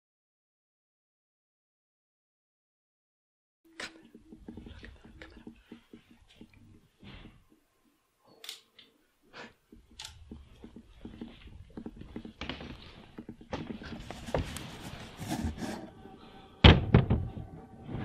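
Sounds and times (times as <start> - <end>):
fabric rustling on microphone: 9.7 - 16.0.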